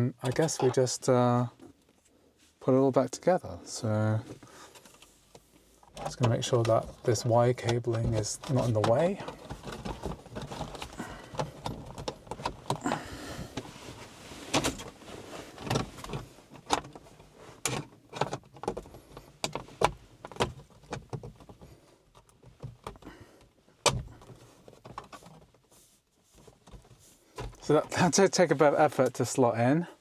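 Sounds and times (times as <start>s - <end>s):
hard plastic parts knocking and scraping: 4.2s - 13.8s, 14.4s - 25.6s, 26.4s - 29.2s.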